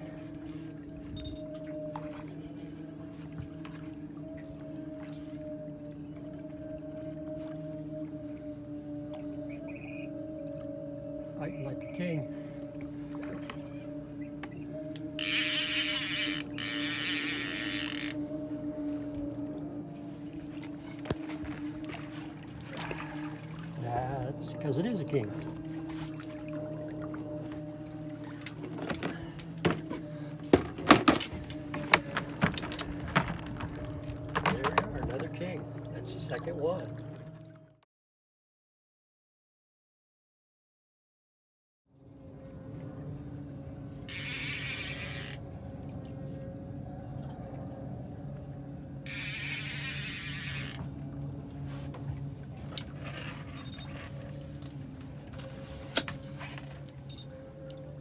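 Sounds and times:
steady engine hum: 0.0 - 37.5, 42.0 - 58.0
outboard motor running: 0.0 - 37.8, 41.9 - 58.0
reel and rod clicks: 14.4 - 18.2, 44.1 - 45.4, 49.0 - 50.9
fishing reel drag buzzing: 15.2 - 18.2, 44.1 - 45.4, 49.0 - 50.9
landing net knocking against boat: 30.5 - 35.2.

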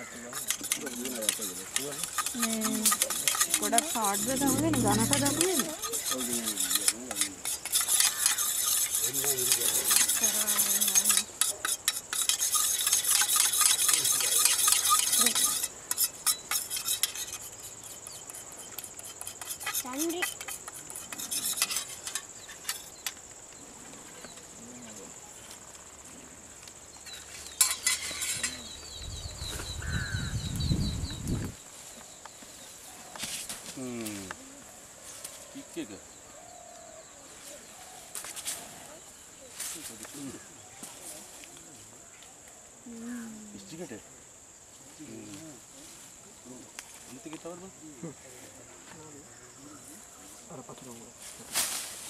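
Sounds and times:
metal rod scraping steel dish: 0.2 - 23.2, 27.5 - 28.7.

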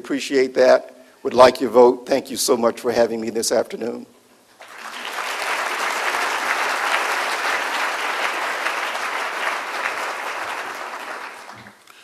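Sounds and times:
audience applauding: 4.6 - 11.9.

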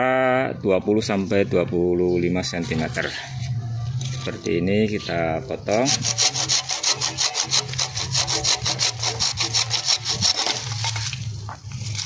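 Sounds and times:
hand saw cutting wood: 5.7 - 11.2.

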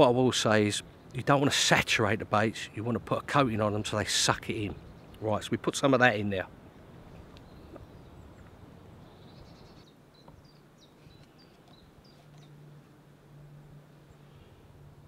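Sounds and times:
low steady hum: 0.0 - 15.0
bird chirping: 4.3 - 5.4, 6.8 - 12.6.

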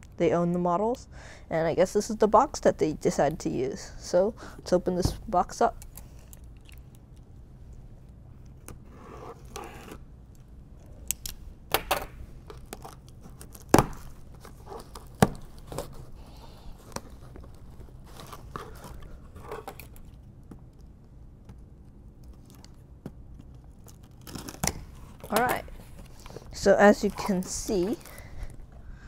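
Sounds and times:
tape and cardboard tearing: 12.5 - 16.1, 23.8 - 28.2.

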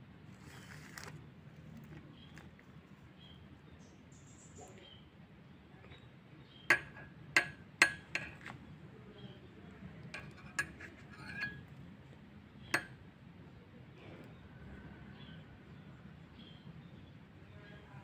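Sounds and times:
spoon clinking against mug: 6.7 - 8.5, 10.1 - 11.7, 12.8 - 13.0.

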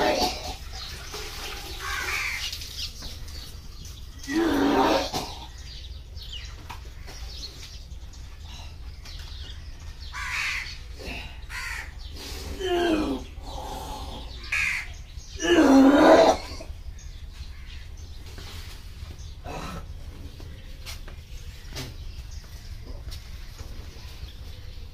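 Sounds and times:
crows cawing: 1.7 - 2.6, 10.0 - 12.1, 14.3 - 15.4, 17.0 - 18.1.

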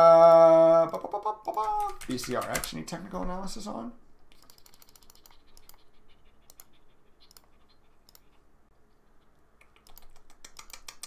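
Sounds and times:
typing on computer keyboard: 1.5 - 2.8, 4.3 - 8.4, 9.6 - 11.0.

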